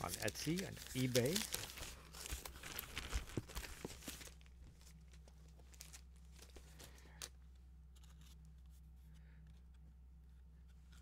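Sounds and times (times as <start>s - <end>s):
cardboard packaging rustling: 0.0s - 7.3s
steady low hum: 0.0s - 11.0s.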